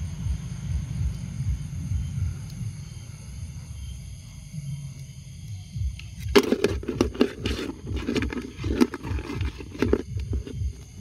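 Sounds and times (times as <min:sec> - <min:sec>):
night insects trilling: 0:00.0 - 0:11.0
low rumbling handling noise: 0:05.9 - 0:11.0
scraping and clicking: 0:06.2 - 0:10.9.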